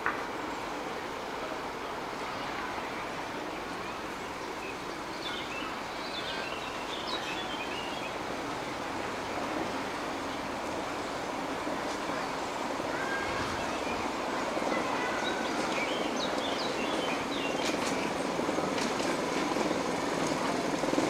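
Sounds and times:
miniature train rumbling on track: 0.0s - 21.0s
birds chirping: 11.6s - 21.0s.

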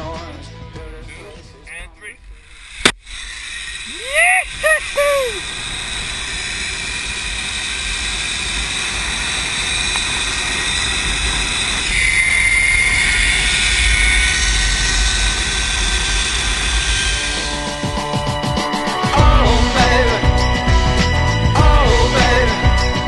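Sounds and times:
faint steady tones: 1.1s - 19.1s
rushing rumbling noise: 1.1s - 23.0s
thin high whine: 1.7s - 23.0s.

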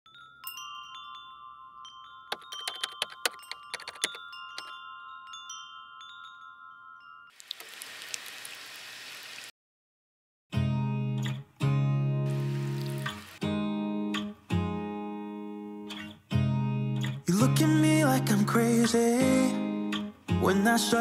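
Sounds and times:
wind chime tinkling: 0.1s - 7.4s
chillies sizzling in hot oil: 7.4s - 9.5s, 12.3s - 13.4s.

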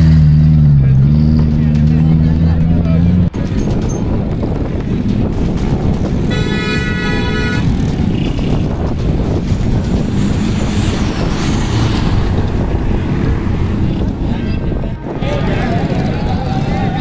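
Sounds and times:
loud engine: 0.0s - 3.8s, 5.2s - 17.0s
vehicle horn: 6.3s - 7.8s.

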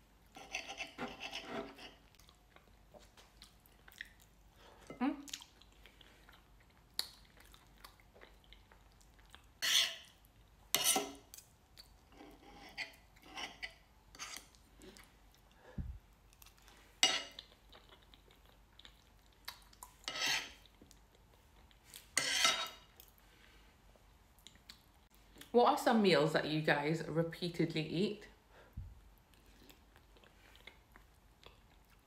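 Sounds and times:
knife and fork scraping a plate: 0.3s - 2.0s, 9.6s - 10.1s, 10.7s - 11.3s, 12.1s - 14.5s, 20.1s - 20.6s, 22.2s - 22.9s
chewing: 1.9s - 10.2s, 14.4s - 15.6s, 16.2s - 22.2s, 29.3s - 32.0s.

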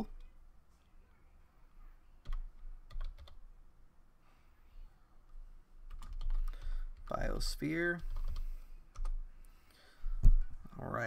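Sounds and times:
typing on computer keyboard: 2.2s - 3.4s, 5.9s - 7.1s, 8.0s - 9.2s.

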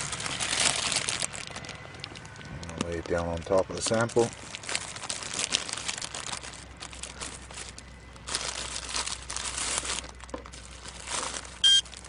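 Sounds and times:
crinkling handling noise: 0.0s - 12.0s.

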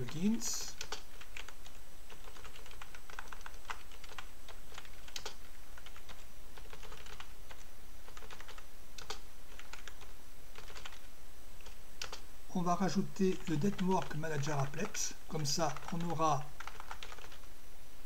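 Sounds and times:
typing on computer keyboard: 0.0s - 11.0s, 11.6s - 12.2s, 15.6s - 17.4s.

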